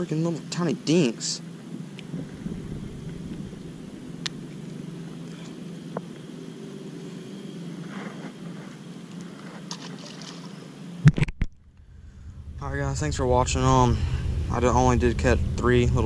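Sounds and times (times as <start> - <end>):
wind rumble on microphone: 1.7 - 5.2, 11.0 - 16.0
fish splashing into water: 9.7 - 10.6.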